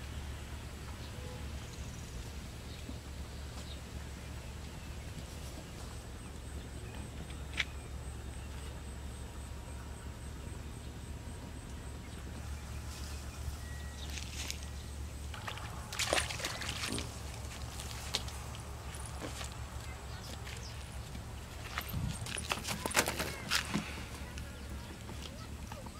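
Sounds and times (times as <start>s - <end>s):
low background hum: 0.0s - 25.9s
fish splashing in water: 15.2s - 19.1s.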